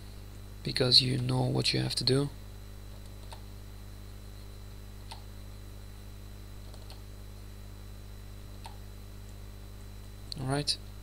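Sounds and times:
steady low hum: 0:00.0 - 0:11.0
faint computer clicks: 0:03.0 - 0:03.5, 0:05.1 - 0:05.3, 0:06.7 - 0:07.0.

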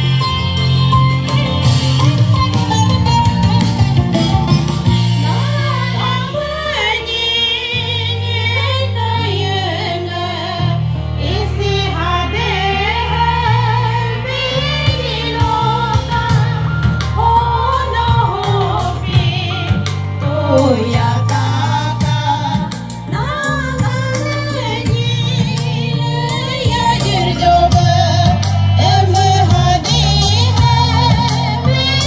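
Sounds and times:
held bass chords: 0:00.0 - 0:32.0
person singing: 0:20.3 - 0:23.8.

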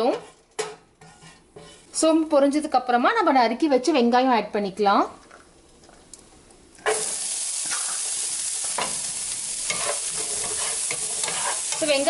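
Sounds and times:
scraping against pan: 0:00.0 - 0:02.0, 0:09.7 - 0:12.0
onions sizzling in oil: 0:06.8 - 0:12.0.

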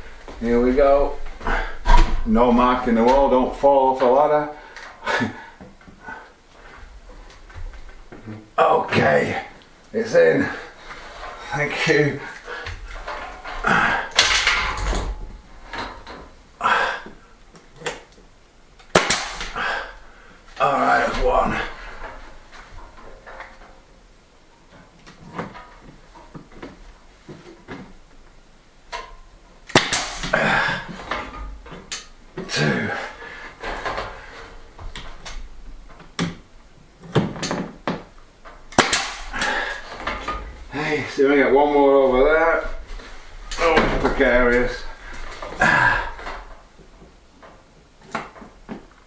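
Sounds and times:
rustles and knocks of handling: 0:00.0 - 0:49.0
pin nailer firing: 0:18.9 - 0:19.6, 0:29.7 - 0:30.5, 0:38.7 - 0:39.7.

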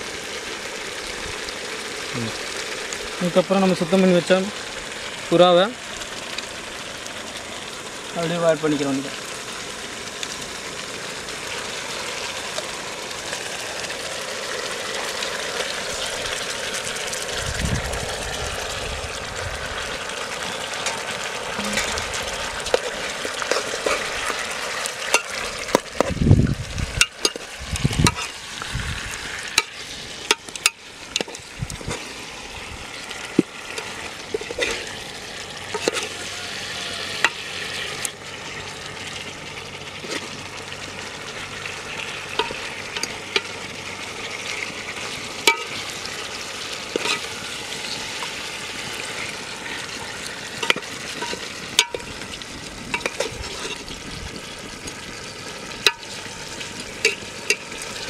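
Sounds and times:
food sizzling in a pot: 0:00.0 - 0:58.0.

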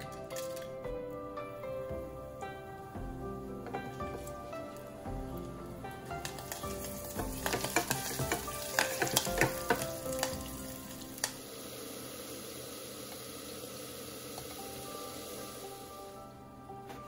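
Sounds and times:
wooden spatula stirring: 0:01.9 - 0:11.4
spices sizzling in hot oil: 0:03.7 - 0:16.4
chillies spitting and popping: 0:05.4 - 0:11.4.

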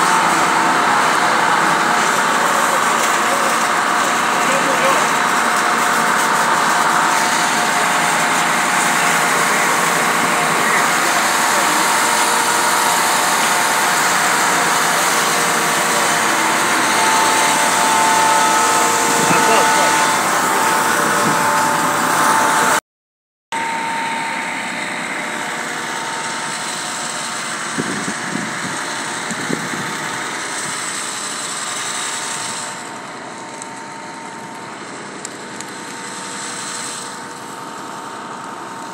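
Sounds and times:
fire crackles: 0:00.0 - 0:21.7, 0:32.9 - 0:38.9
engine-like drone: 0:00.0 - 0:22.8, 0:23.6 - 0:38.9
fire rushing: 0:00.0 - 0:22.8.

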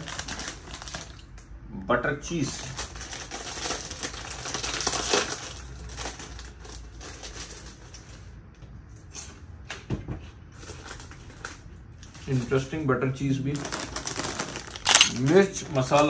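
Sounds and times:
plastic packet crinkling: 0:00.0 - 0:01.3, 0:02.5 - 0:08.2, 0:13.4 - 0:16.0.

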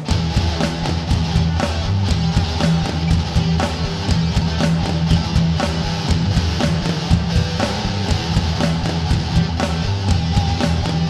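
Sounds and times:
rock music with distorted guitar: 0:00.0 - 0:11.0.

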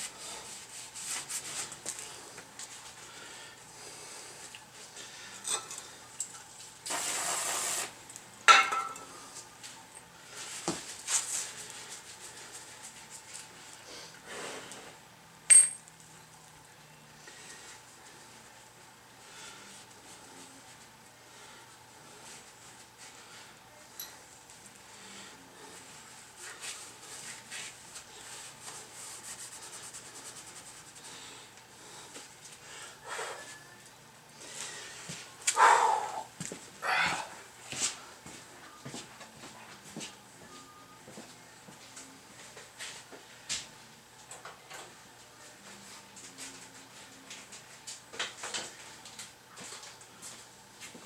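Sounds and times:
metallic clink: 0:15.5 - 0:15.9
cloth rubbing on metal: 0:26.4 - 0:31.1.

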